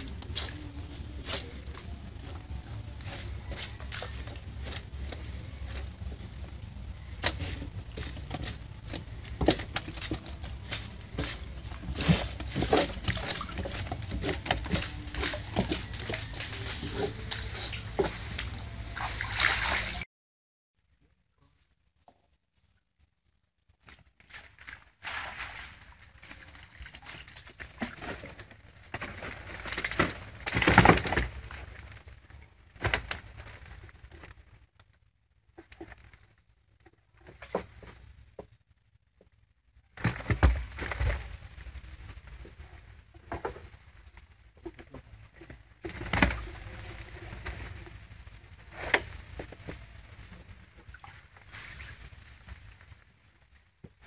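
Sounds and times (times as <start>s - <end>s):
wet net rustling: 0.0s - 20.0s, 23.8s - 34.6s, 40.0s - 54.0s
water splashing: 7.1s - 20.1s, 24.2s - 31.6s.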